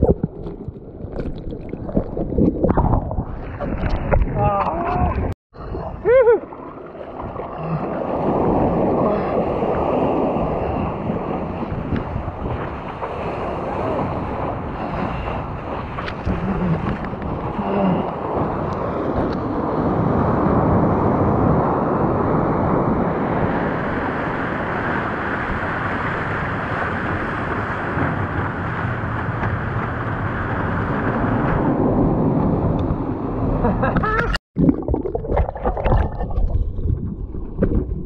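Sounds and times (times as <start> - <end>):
rushing water: 0.0 - 19.8, 34.0 - 38.0
wind buffeting microphone: 7.2 - 34.2.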